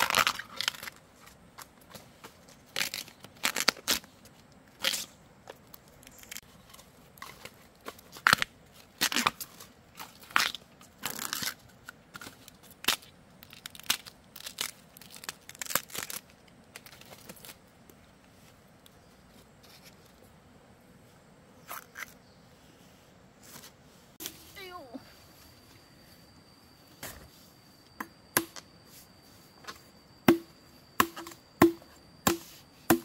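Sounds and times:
crunching and tearing: 12.2 - 17.6.

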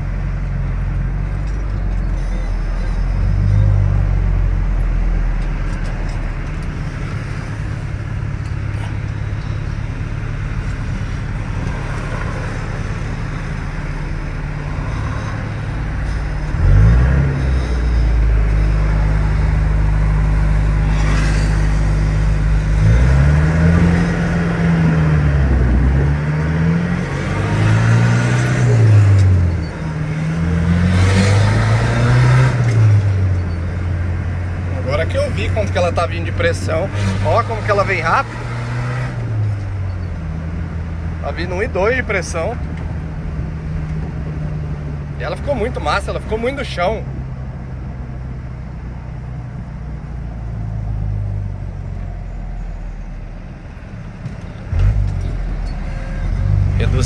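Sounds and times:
truck engine accelerating: 0.0 - 57.0.

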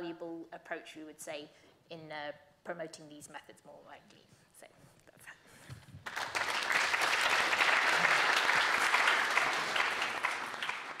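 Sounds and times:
audience applauding: 6.0 - 11.0.

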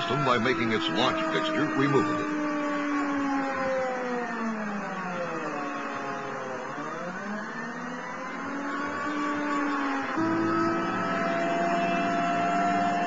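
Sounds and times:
vehicle engine running under load: 8.1 - 13.0.

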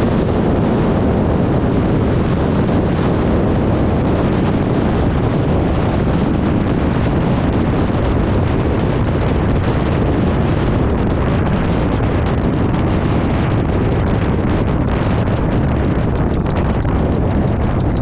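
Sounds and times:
aircraft engine and propeller: 0.0 - 18.0
wind rushing on microphone: 0.0 - 18.0
rapid regular ticking: 6.6 - 18.0.

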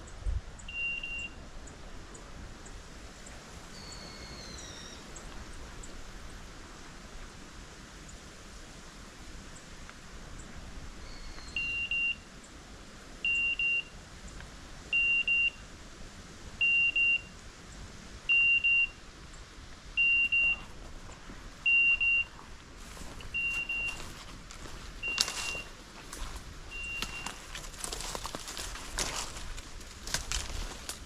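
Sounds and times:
high double beep: 0.7 - 1.4, 11.6 - 12.2, 16.6 - 17.3, 18.3 - 19.0, 20.0 - 20.7, 21.7 - 22.3, 23.2 - 24.1, 25.0 - 25.8, 26.7 - 27.5
brush rustling and crunching: 20.4 - 31.0.

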